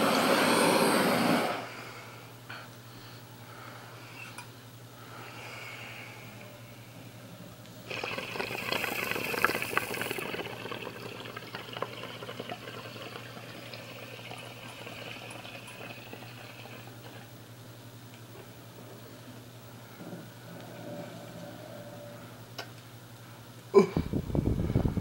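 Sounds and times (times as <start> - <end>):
water bubbling in a bong: 7.8 - 17.3.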